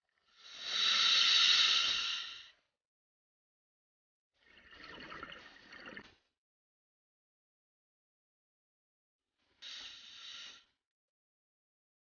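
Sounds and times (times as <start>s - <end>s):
regulator breath hissing: 0.3s - 2.6s, 9.6s - 10.7s
exhaled bubbles rushing: 4.5s - 6.0s.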